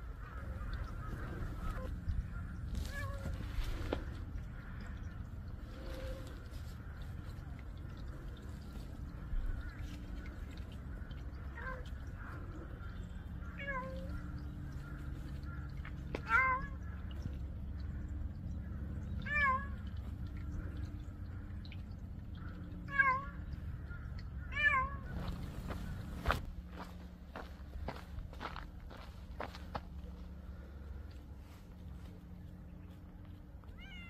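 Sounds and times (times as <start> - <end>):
steady low rumble: 0.0 - 34.0
cat meowing: 24.5 - 25.0, 33.7 - 34.0.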